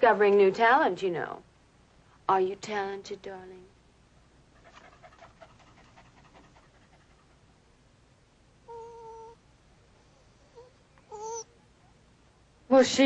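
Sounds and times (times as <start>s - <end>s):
dog whining: 8.6s - 9.4s, 10.0s - 12.0s.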